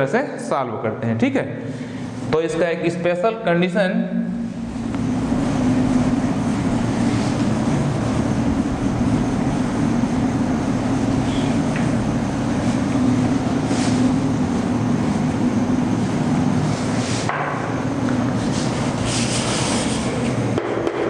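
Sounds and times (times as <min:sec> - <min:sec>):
duster rubbing on chalkboard: 0:18.4 - 0:20.4.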